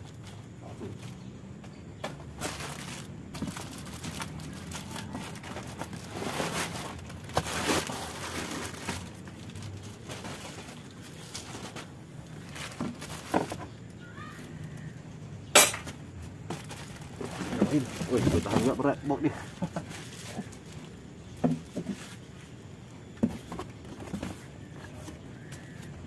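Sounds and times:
plastic wrapping crinkling: 2.3 - 14.2, 16.5 - 22.5
cardboard box rustling: 16.5 - 22.4, 23.2 - 26.0.

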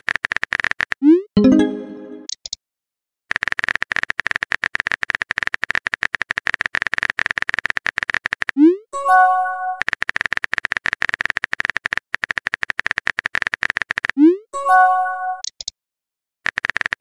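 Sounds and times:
short electronic chime: 1.4 - 2.3
simulated keyboard tapping clicks: 15.4 - 15.8.

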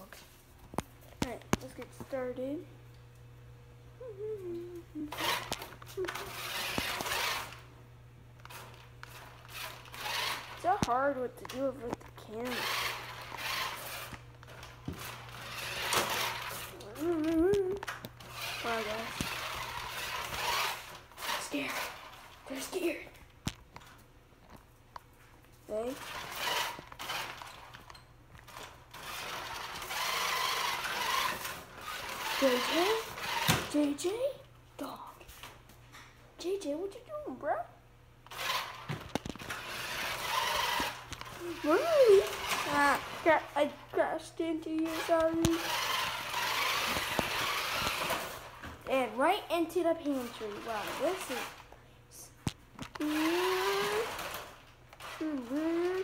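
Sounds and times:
toy truck motor whirring: 4.6 - 7.7, 8.4 - 23.0, 25.7 - 34.1, 38.2 - 51.8, 52.9 - 56.0.

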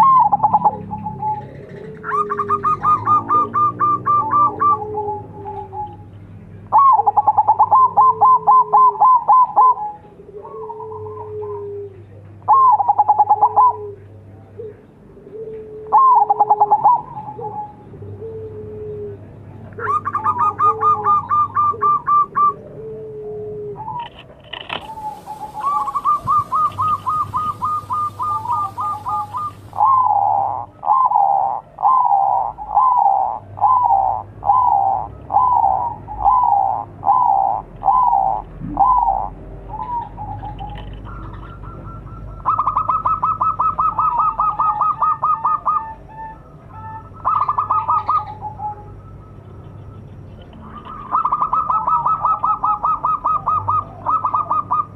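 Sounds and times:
dove cooing: 0.0 - 54.9.

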